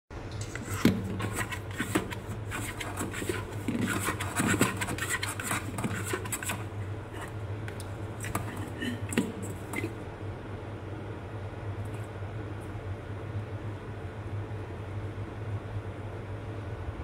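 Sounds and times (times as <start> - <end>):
dough kneaded in steel bowl: 0.1 - 10.1.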